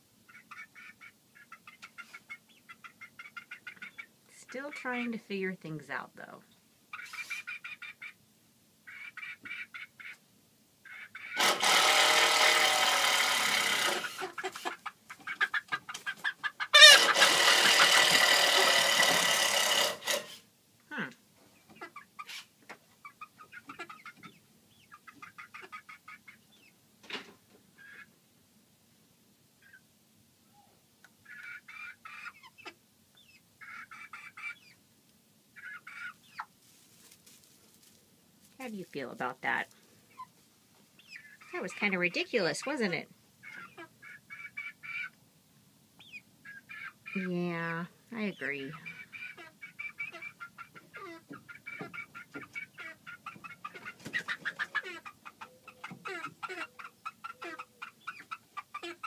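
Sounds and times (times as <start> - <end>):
hens clucking softly: 0.2 - 4.9, 6.9 - 8.2, 8.8 - 10.2, 10.8 - 11.6, 13.6 - 19.1, 21.6 - 28.2, 31.0 - 34.8, 35.5 - 36.8, 39.6 - 45.2, 48.5 - 59.0
hens squawking and wing-flapping: 6.9 - 8.2, 13.4 - 20.3, 48.6 - 59.0.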